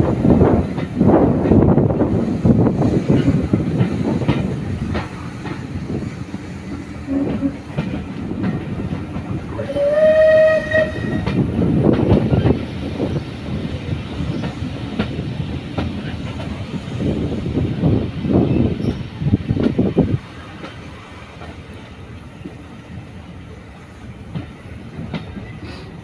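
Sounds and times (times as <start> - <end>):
train rumbling: 0.0 - 26.0
wheels clicking over rail joints: 3.0 - 13.2
steam locomotive whistle: 7.1 - 7.6, 9.5 - 11.4.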